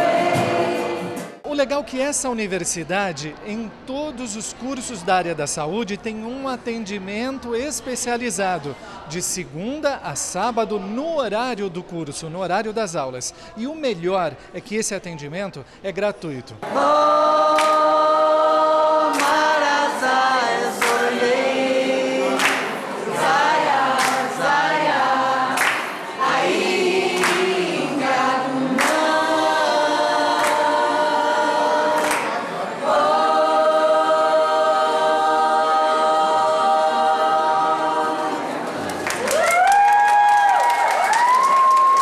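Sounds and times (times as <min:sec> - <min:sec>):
group of voices singing: 0:00.0 - 0:01.4, 0:16.6 - 0:39.0.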